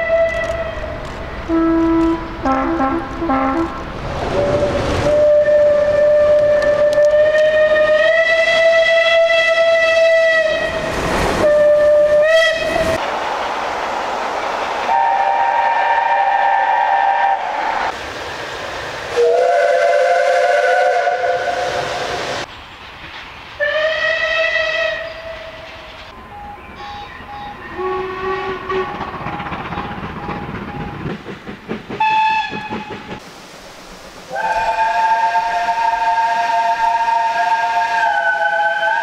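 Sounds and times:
steam locomotive whistle blasts: 0.0s - 0.9s, 1.5s - 10.8s, 11.4s - 13.0s, 14.9s - 17.9s, 19.2s - 22.0s, 23.6s - 25.7s, 26.3s - 29.0s, 32.0s - 33.1s, 34.3s - 39.0s
rolling train noise: 0.0s - 39.0s
steam hiss: 10.8s - 23.7s, 31.1s - 39.0s.

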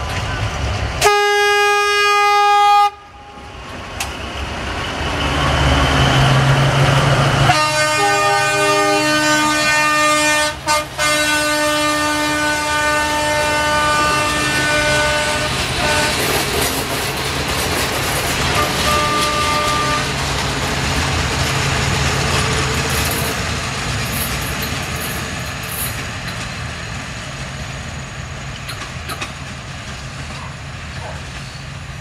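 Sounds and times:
locomotive engine rumble: 0.0s - 1.1s, 3.1s - 32.0s
train carriages clattering by: 0.0s - 1.7s, 3.4s - 32.0s
locomotive horn blast: 1.0s - 3.4s, 7.4s - 16.4s, 18.5s - 20.2s.

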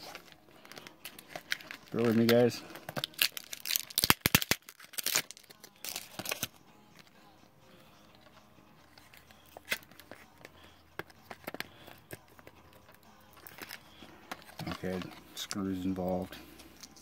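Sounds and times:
package rustling: 0.0s - 6.5s, 11.0s - 15.6s.

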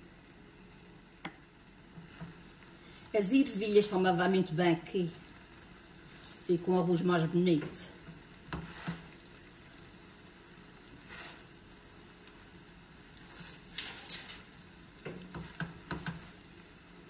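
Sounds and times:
faint sizzle: 0.0s - 17.0s
spatula scraping rice in pan: 8.4s - 9.3s, 11.0s - 11.6s, 13.1s - 14.5s.

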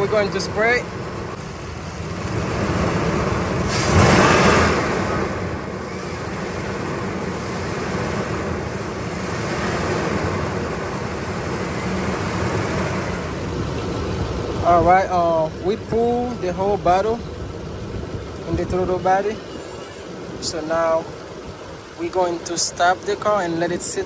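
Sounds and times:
hissing rush: 0.0s - 17.5s
car engine idling: 0.0s - 24.0s.

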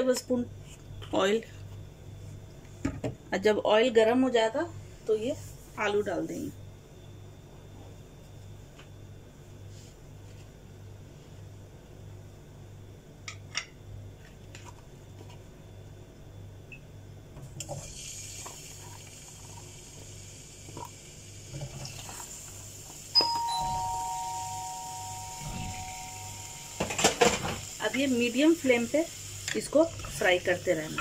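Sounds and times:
oil sizzling: 17.7s - 23.2s, 24.2s - 31.0s
two-note chime: 23.2s - 27.0s.

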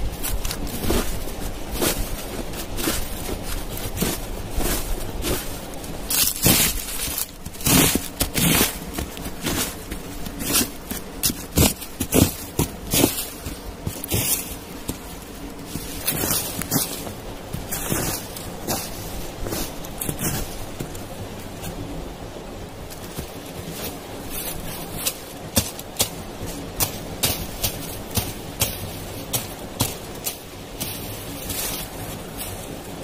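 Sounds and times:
boots crunching through dry leaves: 0.0s - 21.1s, 22.9s - 33.0s.

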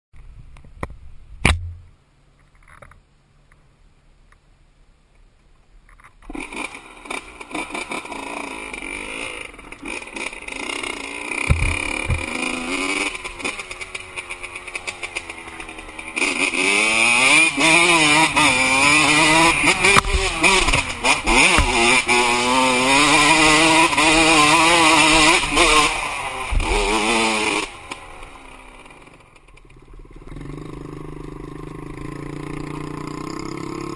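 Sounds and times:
sharp click: 0.5s - 3.0s
dirt bike engine revving: 6.3s - 33.9s.

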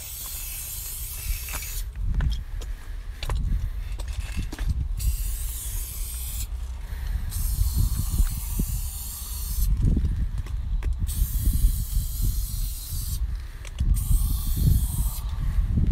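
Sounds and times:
spray-paint can hissing: 0.0s - 1.9s, 5.0s - 6.5s, 7.3s - 9.8s, 11.0s - 13.2s, 13.9s - 15.3s
low rumble: 13.2s - 15.9s.

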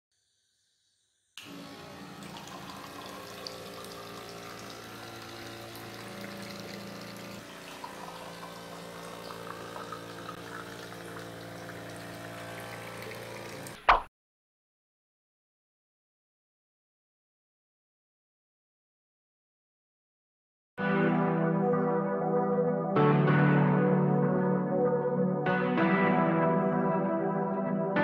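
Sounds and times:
small motor humming: 1.4s - 13.8s
water pouring into a glass: 1.4s - 13.8s.

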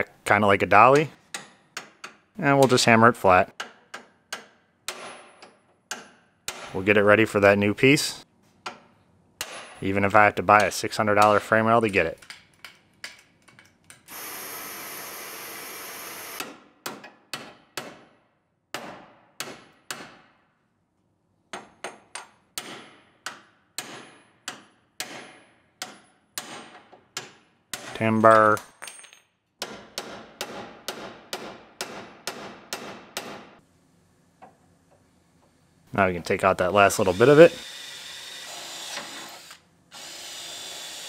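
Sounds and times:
hammer striking steel: 9.4s - 9.8s, 21.5s - 28.4s.

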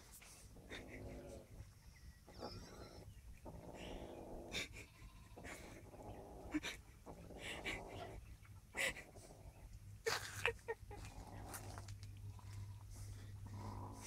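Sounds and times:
cat growling low: 0.4s - 1.7s, 2.3s - 8.3s, 10.9s - 14.0s.

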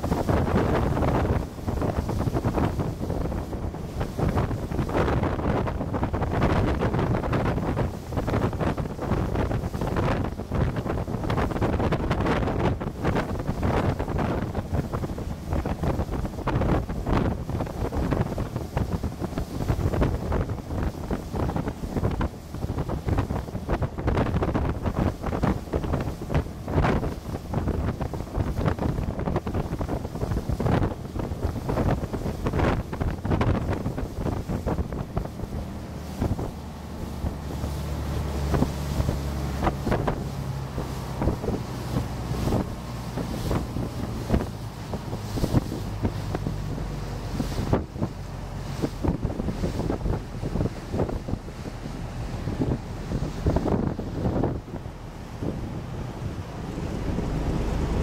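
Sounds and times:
boat engine rumble: 0.0s - 58.0s
water wash: 0.0s - 58.0s
wind buffeting microphone: 0.0s - 58.0s.

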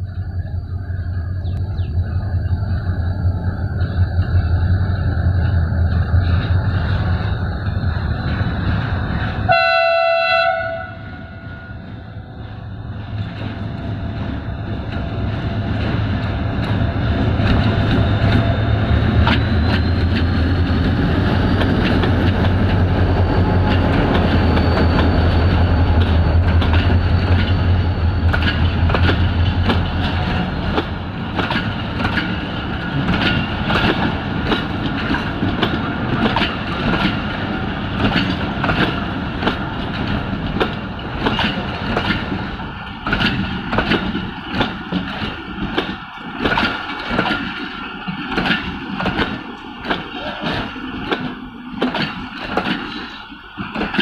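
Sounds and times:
locomotive engine rumble: 0.0s - 54.0s
wheels clacking over rail joints: 3.7s - 54.0s
train horn blast: 9.5s - 12.0s.

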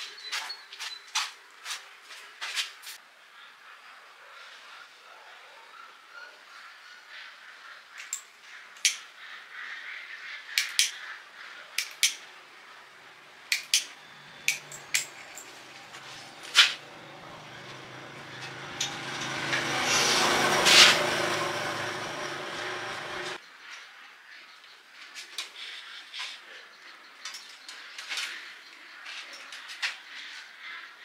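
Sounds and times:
machine hum: 12.9s - 23.4s.

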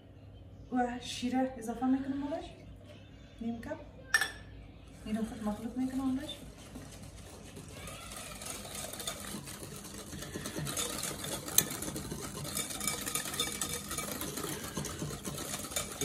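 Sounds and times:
whisk rattling in glass bowl: 5.2s - 16.0s.

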